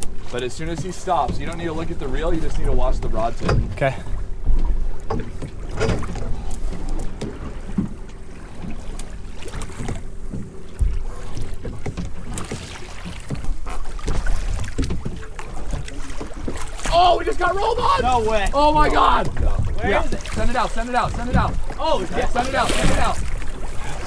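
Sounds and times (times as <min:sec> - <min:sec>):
outboard motors running: 0:00.0 - 0:24.0
short knocks: 0:03.0 - 0:06.4.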